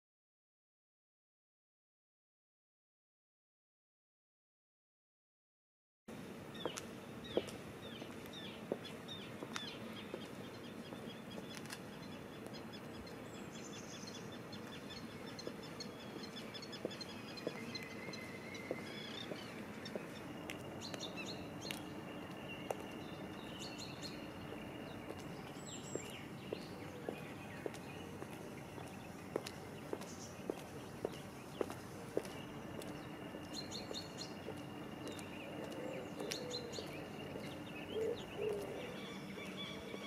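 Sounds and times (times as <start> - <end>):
steady background hum: 6.1 - 40.0
birds chirping: 6.5 - 40.0
high-heeled footsteps on pavement: 6.6 - 13.0, 14.1 - 38.0.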